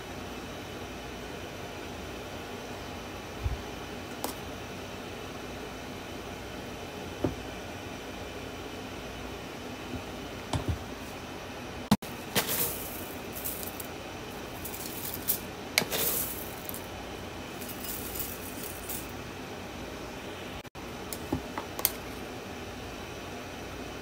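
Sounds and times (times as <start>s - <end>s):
cornflakes rustling: 12.1s - 16.9s, 17.5s - 19.1s.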